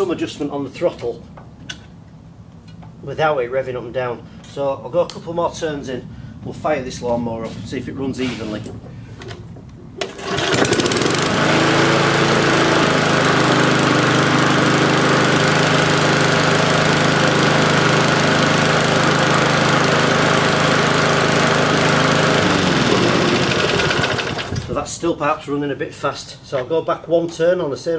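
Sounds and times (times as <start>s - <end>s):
lawnmower engine running: 10.0s - 24.8s.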